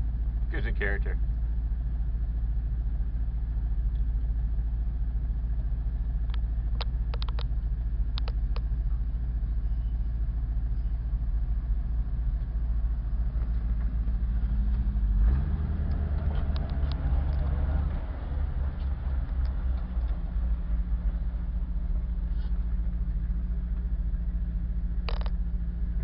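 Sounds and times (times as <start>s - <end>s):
truck engine idling: 0.0s - 26.0s
sharp clicks: 6.2s - 8.7s.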